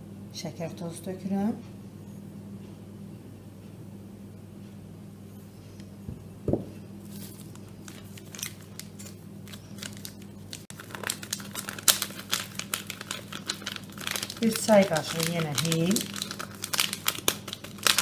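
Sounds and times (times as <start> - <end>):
low steady hum: 0.0 - 18.0
paper sachet crinkling: 7.1 - 18.0.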